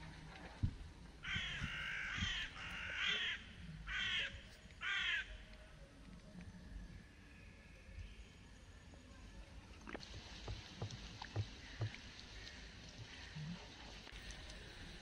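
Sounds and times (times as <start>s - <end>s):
crow cawing: 1.2s - 5.3s.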